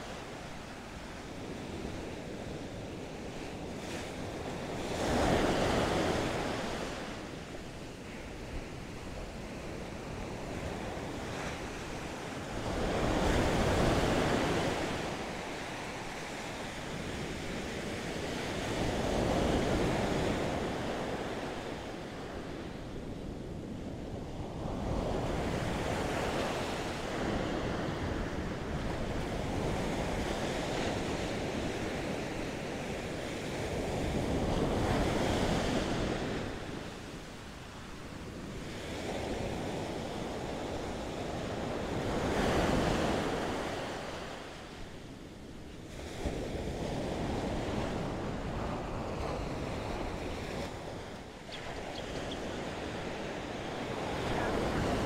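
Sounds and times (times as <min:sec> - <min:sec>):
wind on microphone: 0:00.0 - 0:55.0
ocean surf breaking: 0:52.6 - 0:55.0.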